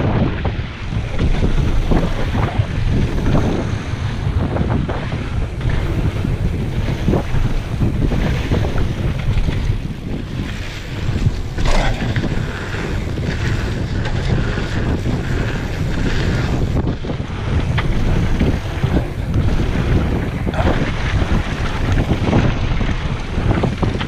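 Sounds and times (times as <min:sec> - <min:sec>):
bike knocking and rattling: 0:00.0 - 0:24.0
wind buffeting microphone: 0:00.0 - 0:24.0
tyres rolling over gravel: 0:05.5 - 0:16.7.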